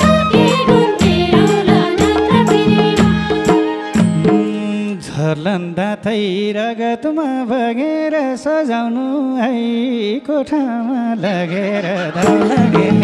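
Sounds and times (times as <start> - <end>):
drums: 0.0 - 4.7, 12.2 - 13.0.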